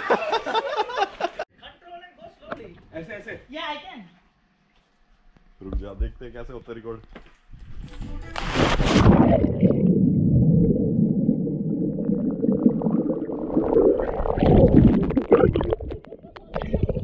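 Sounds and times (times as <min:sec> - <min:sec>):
bubbles gurgling: 0:08.9 - 0:17.0
muffled underwater rumble: 0:09.0 - 0:17.0.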